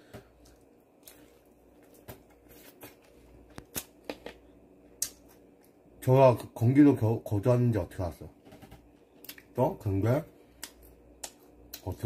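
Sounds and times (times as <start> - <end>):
chewing with soft crunches: 0.3 - 5.8.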